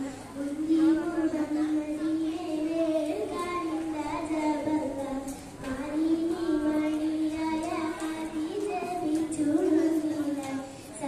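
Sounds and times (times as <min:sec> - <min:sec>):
girl singing into a microphone: 0:00.0 - 0:11.0.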